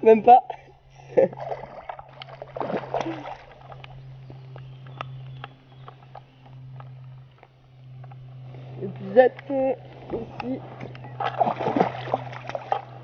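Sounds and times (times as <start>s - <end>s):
light water sounds: 1.1s - 13.0s
fish thrashing and splashing: 1.4s - 3.9s, 10.1s - 13.0s
small ticks: 3.7s - 9.5s.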